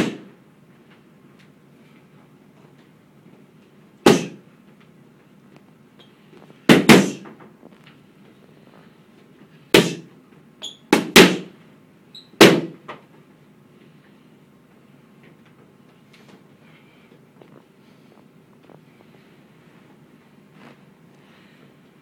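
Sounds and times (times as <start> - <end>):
boxing gloves smacking mitts: 0.0 - 0.3, 4.0 - 4.4, 6.6 - 7.5, 9.7 - 10.1, 10.9 - 11.6, 12.4 - 13.0.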